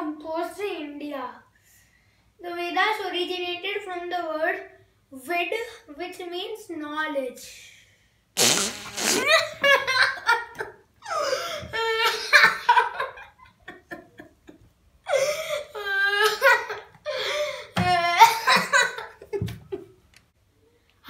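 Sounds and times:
boy laughing: 0:08.7 - 0:17.3, 0:18.0 - 0:20.0.

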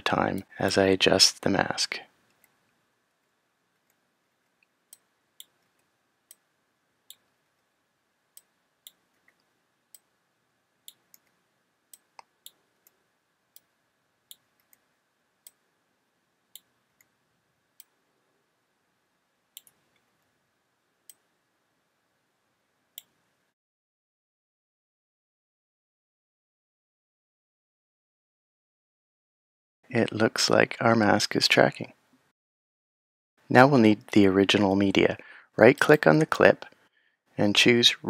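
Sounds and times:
faint room hiss: 0:00.0 - 0:23.6, 0:29.9 - 0:32.3, 0:33.4 - 0:38.0
keyboard and mouse clicks: 0:19.6 - 0:20.1.

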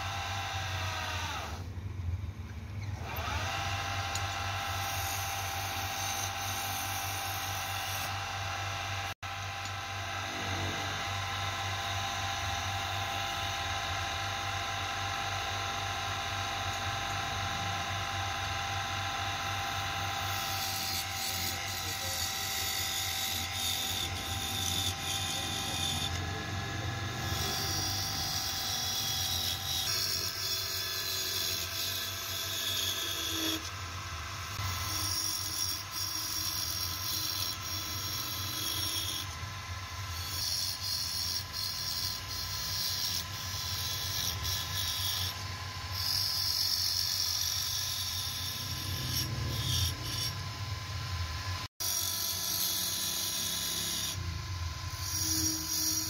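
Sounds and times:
wood lathe humming: 0:00.0 - 0:01.7, 0:03.0 - 0:56.0
chisel cutting wood hiss: 0:54.9 - 0:56.0.

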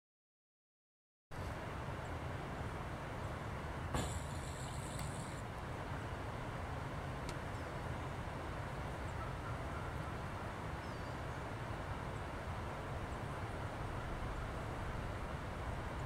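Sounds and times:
outdoor background rumble: 0:01.3 - 0:16.0
faint bird chirps: 0:10.8 - 0:11.5.

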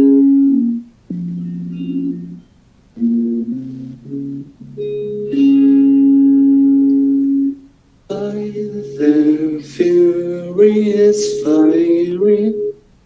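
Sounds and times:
electric guitar: 0:00.0 - 0:12.9
man singing: 0:08.1 - 0:12.8.

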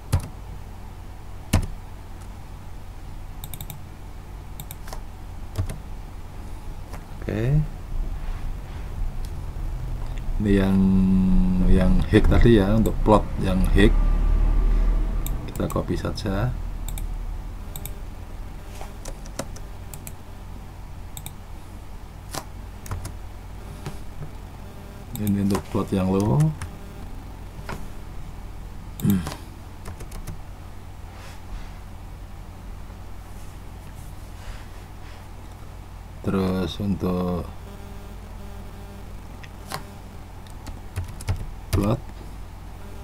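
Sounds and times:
keyboard typing: 0:00.0 - 0:00.4, 0:01.5 - 0:01.8, 0:03.4 - 0:03.8, 0:04.6 - 0:05.8, 0:15.2 - 0:15.9, 0:16.8 - 0:17.1, 0:17.7 - 0:18.0, 0:19.0 - 0:20.2, 0:22.3 - 0:23.2, 0:25.1 - 0:26.8, 0:29.0 - 0:30.4, 0:40.5 - 0:42.0
steady low hum: 0:00.0 - 0:43.0
keyboard key presses: 0:01.5 - 0:01.8, 0:04.6 - 0:05.8
computer mouse clicks: 0:03.4 - 0:03.8, 0:04.6 - 0:05.0, 0:15.2 - 0:15.8, 0:16.9 - 0:17.1, 0:17.7 - 0:18.0, 0:19.0 - 0:20.2, 0:21.2 - 0:21.4, 0:25.2 - 0:25.6.

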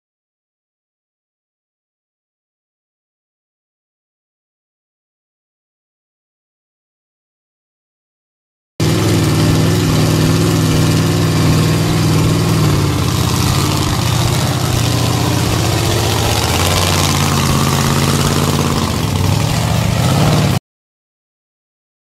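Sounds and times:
truck engine running: 0:08.8 - 0:20.6.

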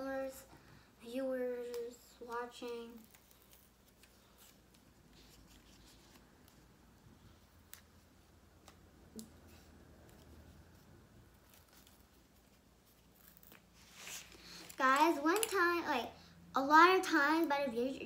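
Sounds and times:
faint sticker peeling rustles: 0:01.5 - 0:15.7.

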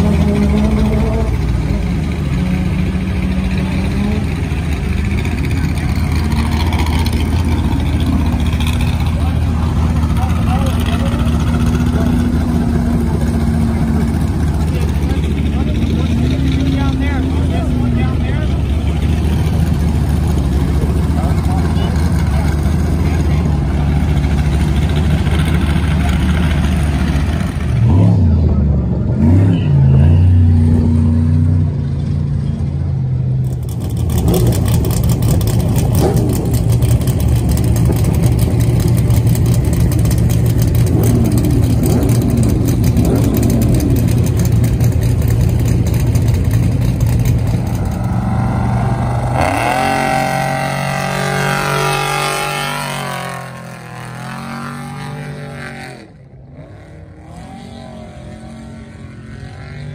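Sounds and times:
race truck engines running: 0:00.0 - 0:59.9
engine revving: 0:33.4 - 0:59.9.

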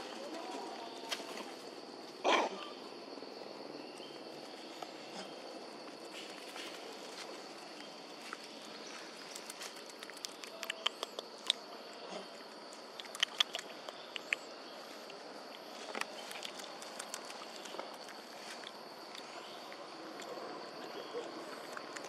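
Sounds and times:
insect drone: 0:00.0 - 0:22.0
monkeys rustling in grass: 0:04.2 - 0:10.4.

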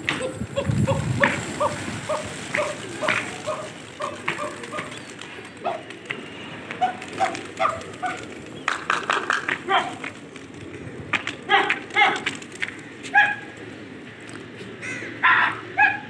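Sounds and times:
animal yelping: 0:00.1 - 0:05.0, 0:06.8 - 0:08.4, 0:11.5 - 0:12.3, 0:13.0 - 0:13.5, 0:14.8 - 0:16.0.

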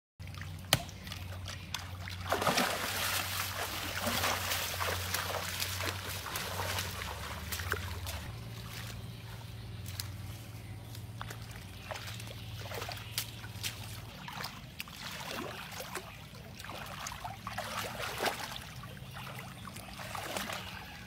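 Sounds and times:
low hum: 0:00.2 - 0:16.5
water splashing and sloshing: 0:00.2 - 0:21.0.

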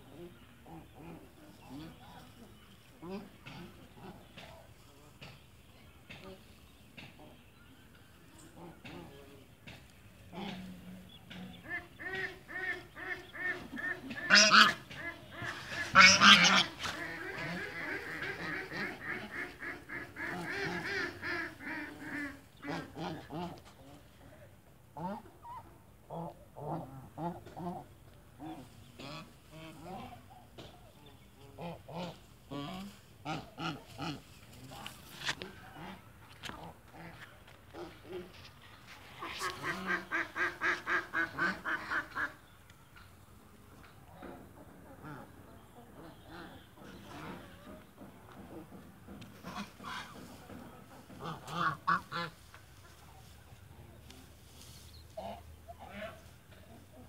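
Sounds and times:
waterfowl calling: 0:10.3 - 0:23.7, 0:31.5 - 0:42.6, 0:43.8 - 0:57.0
duck quacking: 0:10.3 - 0:24.0, 0:31.5 - 0:42.5, 0:44.2 - 0:48.7, 0:49.4 - 0:53.0, 0:55.2 - 0:57.0.

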